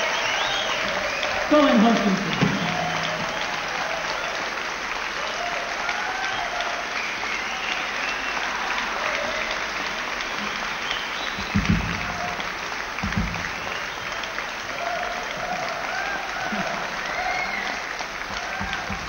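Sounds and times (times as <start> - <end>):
voices calling out: 0.0 - 4.4
audience applauding: 0.0 - 19.0.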